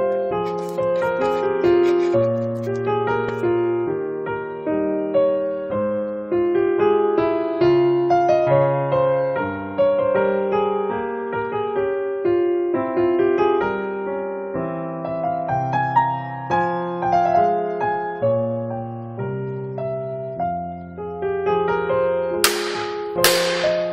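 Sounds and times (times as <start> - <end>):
piano music: 22.4 - 23.9.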